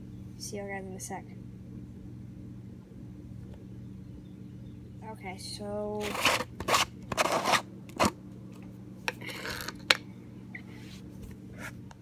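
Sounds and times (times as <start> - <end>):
plastic lid scraping: 6.0 - 8.2.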